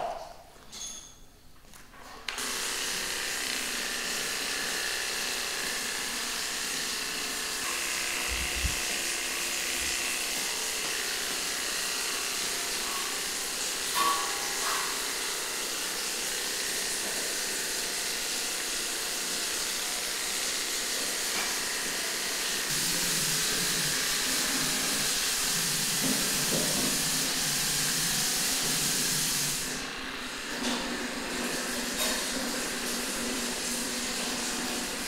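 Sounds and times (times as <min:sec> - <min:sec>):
clipper motor buzzing: 0:02.3 - 0:15.4
electric clipper switching on: 0:02.3 - 0:35.0.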